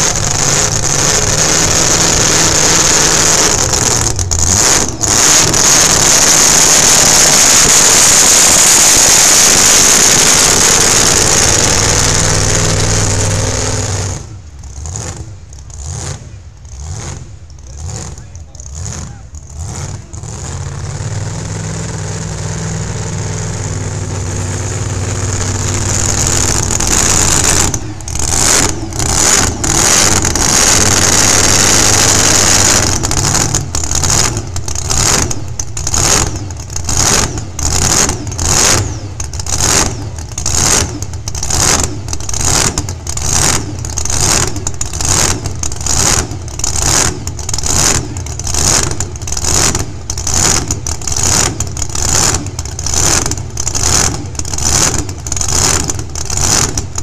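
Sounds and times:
truck engine revving: 0:00.0 - 0:57.0.

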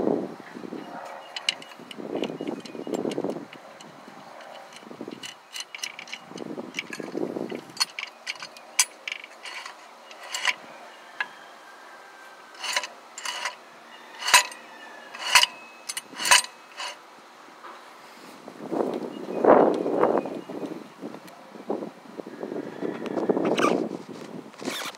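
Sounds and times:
metallic clicks of tools: 0:01.2 - 0:10.6, 0:12.5 - 0:13.6, 0:14.2 - 0:17.0
sharp metal clanks: 0:01.2 - 0:10.6, 0:12.5 - 0:17.0.

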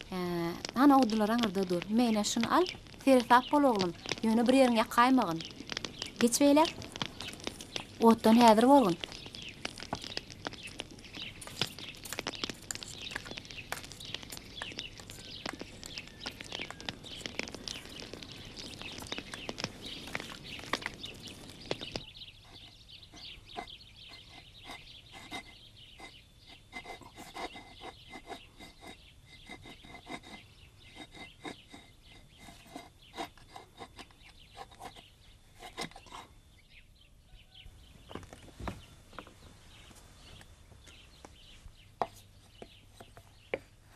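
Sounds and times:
birds chirping: 0:00.0 - 0:43.8
small knocks and clicks: 0:00.6 - 0:24.3.

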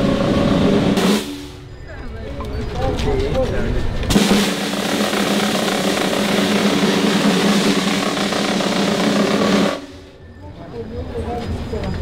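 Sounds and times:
snare drum roll: 0:04.1 - 0:10.0.

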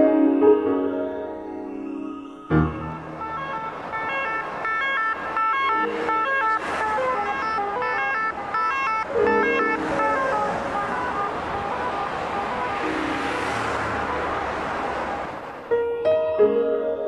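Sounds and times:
siren-like electronic tones: 0:01.6 - 0:11.2.

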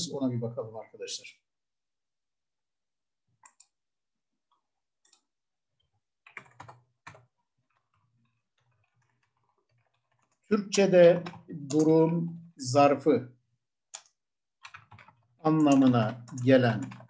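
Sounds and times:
computer keyboard typing: 0:03.4 - 0:03.8, 0:04.6 - 0:12.6, 0:13.9 - 0:17.0.

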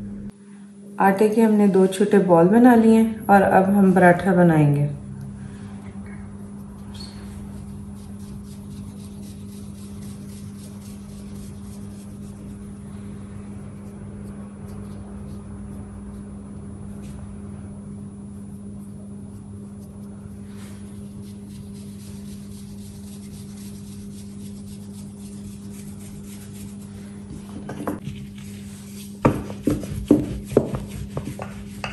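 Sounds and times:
low electrical hum: 0:00.0 - 0:31.9
dough patted in flour: 0:27.3 - 0:31.9.

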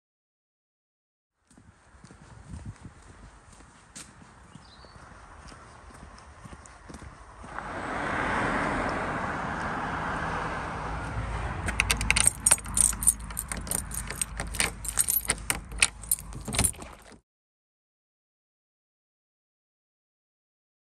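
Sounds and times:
car passing on wet road: 0:07.4 - 0:11.7
key turning in door lock: 0:11.7 - 0:17.2
keys jangling: 0:11.7 - 0:17.2.

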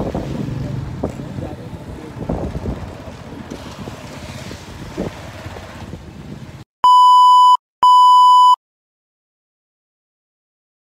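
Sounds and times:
test-pattern beeps: 0:06.8 - 0:08.6.

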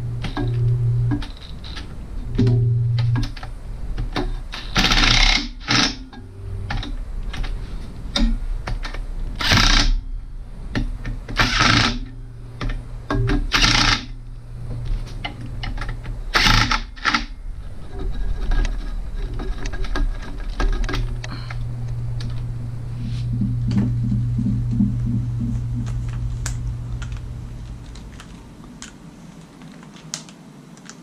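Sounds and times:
drill clutch clattering: 0:04.1 - 0:10.0, 0:10.7 - 0:14.2, 0:14.8 - 0:17.4
cordless drill motor whirring: 0:09.4 - 0:09.9.

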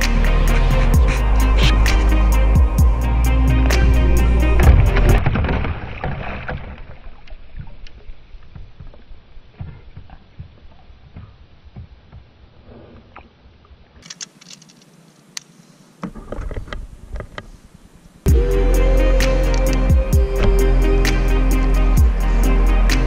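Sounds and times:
water sloshing against a kayak hull: 0:04.6 - 0:12.2.

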